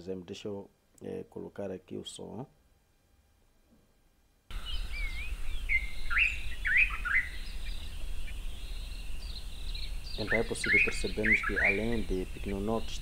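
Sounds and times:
low background noise: 0.0 - 13.0
bird singing whistled notes: 4.5 - 13.0
high-pitched bird calls: 4.5 - 13.0.

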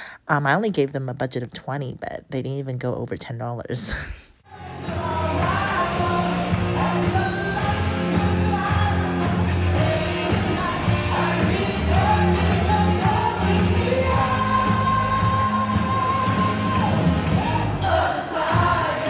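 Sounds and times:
man singing into microphone: 4.7 - 17.5.

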